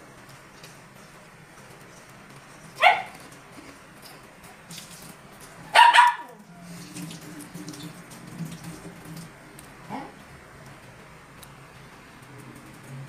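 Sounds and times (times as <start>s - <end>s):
small dog barking: 2.8s - 3.2s, 5.7s - 6.5s, 9.9s - 10.2s.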